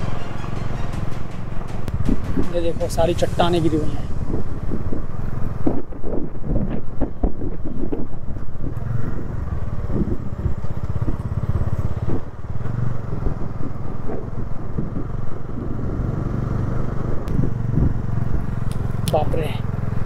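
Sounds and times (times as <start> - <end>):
motorcycle engine running: 0.0 - 20.0
road and wind noise: 0.0 - 20.0.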